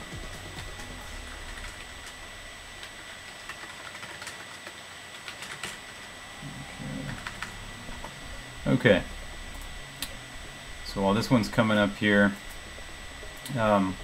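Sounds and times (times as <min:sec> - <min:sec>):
thin high whine: 0:00.0 - 0:14.0
computer keyboard keystrokes: 0:02.8 - 0:05.8.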